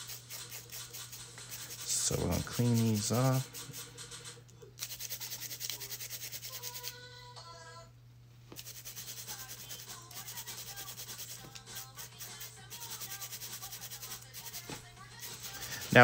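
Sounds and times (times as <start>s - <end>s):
scrubbing fingernails: 0.0s - 3.9s, 4.8s - 6.9s, 8.6s - 16.0s.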